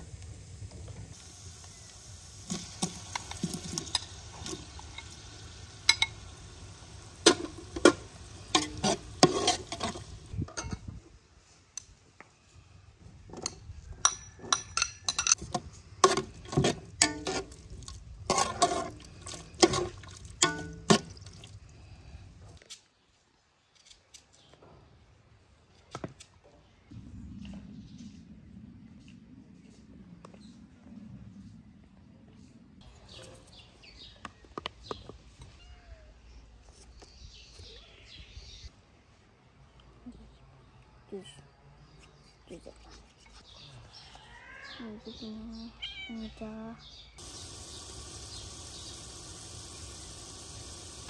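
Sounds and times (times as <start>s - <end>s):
metal utensils clinking on bowl and pot: 2.5s - 6.5s, 7.2s - 10.8s, 14.0s - 17.6s, 18.3s - 21.2s.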